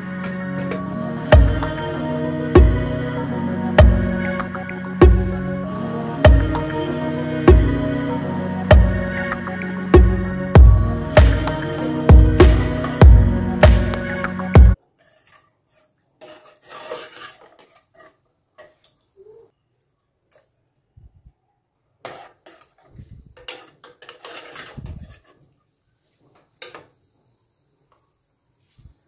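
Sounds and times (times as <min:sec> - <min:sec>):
spoon scraping metal pot: 0:14.9 - 0:18.9, 0:22.0 - 0:25.5.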